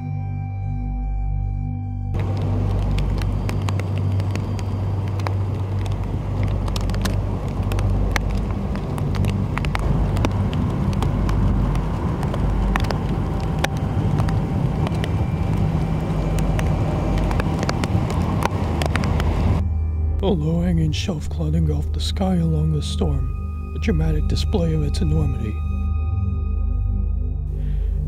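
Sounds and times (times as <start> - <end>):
gusty wind rumbling on microphone: 2.2 - 19.6
raindrops ticking on microphone: 2.2 - 19.6, 20.6 - 25.6.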